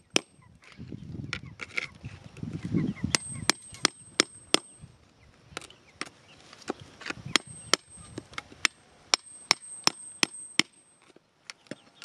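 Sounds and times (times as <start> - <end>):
hand tool digging in gravel: 0.0 - 2.6.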